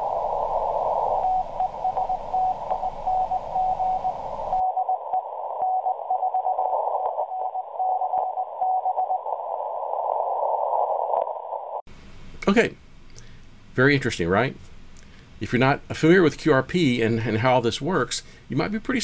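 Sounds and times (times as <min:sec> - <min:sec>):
receiver hiss: 0:00.0 - 0:19.0
morse code tone: 0:01.2 - 0:09.2.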